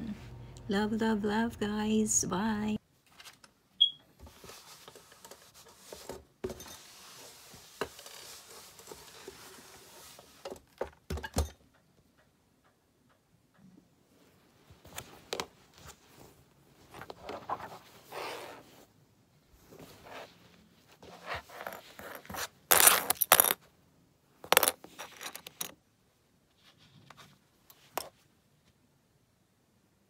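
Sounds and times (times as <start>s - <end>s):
towels rustling on a table: 14.2s - 18.9s, 19.5s - 22.6s.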